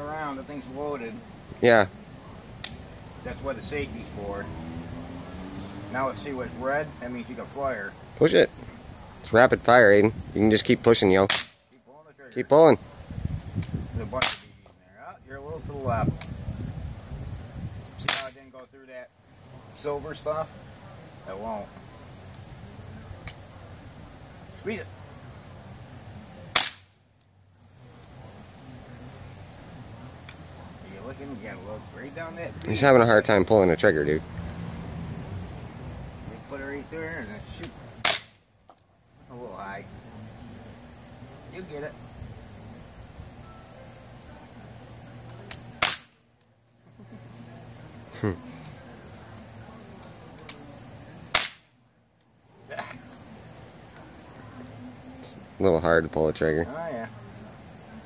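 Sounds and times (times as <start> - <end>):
crickets and insects buzzing: 0.0 - 58.0
bb gun shot: 14.2 - 14.6, 26.6 - 26.9, 38.0 - 38.4, 45.8 - 46.2, 51.3 - 51.7.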